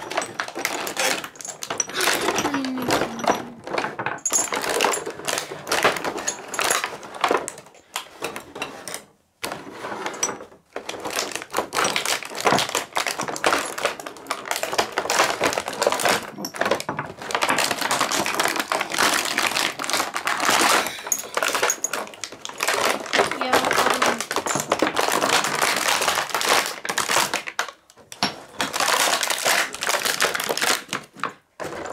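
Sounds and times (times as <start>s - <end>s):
plastic packaging crackling: 10.9s - 27.8s, 28.6s - 31.3s.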